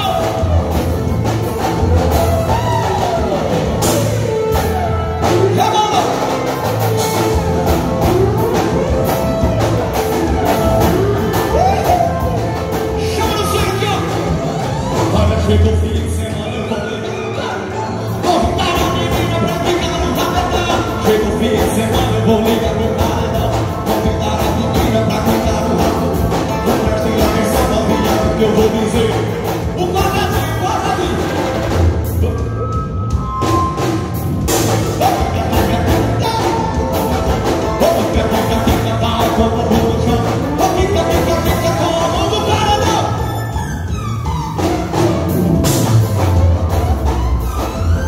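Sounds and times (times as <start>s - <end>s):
steady drum beat: 0.0s - 16.4s, 17.8s - 48.0s
person singing: 0.0s - 32.6s, 34.6s - 44.4s
accordion: 0.0s - 48.0s
bass: 0.0s - 48.0s
electric guitar: 0.0s - 48.0s
keyboard: 0.0s - 48.0s.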